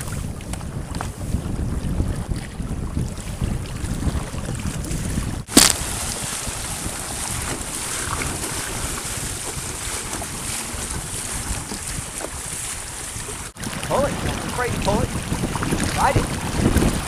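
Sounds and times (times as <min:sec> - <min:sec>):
water rushing along a hull: 0:00.0 - 0:17.0
wind buffeting the microphone: 0:00.0 - 0:17.0.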